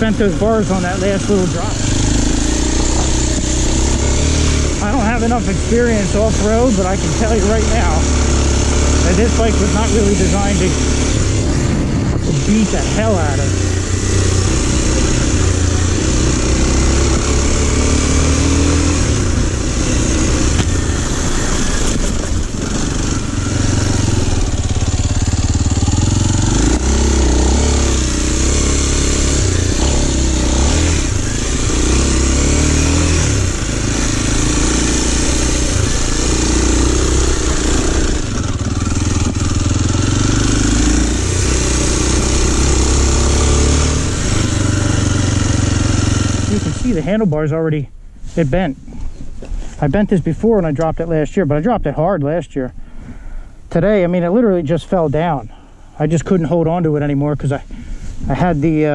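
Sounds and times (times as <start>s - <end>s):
motorbike engine revving: 0.0s - 47.3s
wind noise on microphone: 11.1s - 12.8s.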